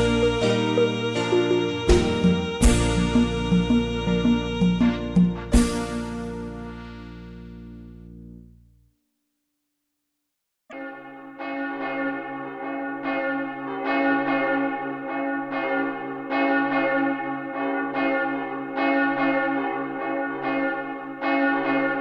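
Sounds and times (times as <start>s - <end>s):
church bell ringing: 10.7s - 22.0s.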